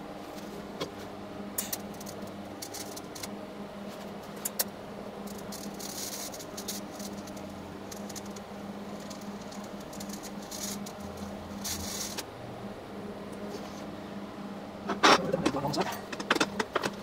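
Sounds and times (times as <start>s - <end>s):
welding arc humming: 0.0s - 17.0s
crackling hiss of welding arc: 1.6s - 12.3s.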